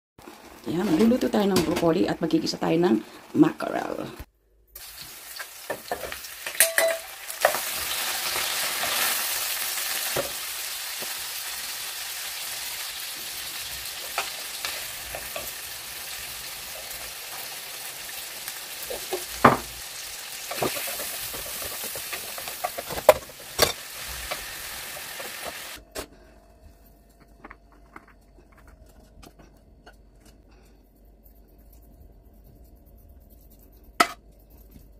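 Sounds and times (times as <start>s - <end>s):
food sizzling in a frying pan: 4.8s - 25.8s.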